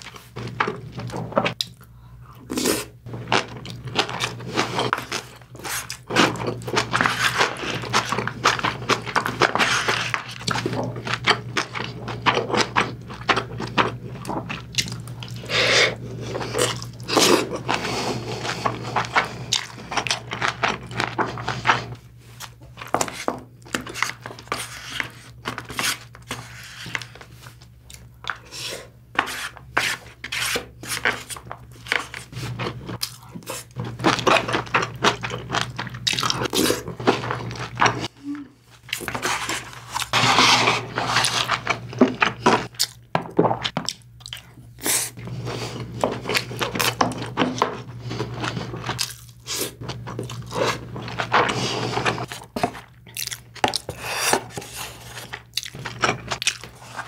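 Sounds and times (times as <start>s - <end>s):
chewing and wet mouth sounds: 10.2s - 23.0s, 31.3s - 40.1s, 41.2s - 45.2s, 45.8s - 51.6s, 52.2s - 57.0s.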